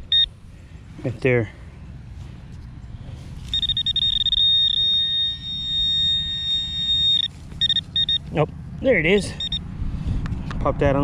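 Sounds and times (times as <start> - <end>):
pinpointer electronic tone: 0.0 - 0.3, 3.5 - 8.4, 9.4 - 9.6.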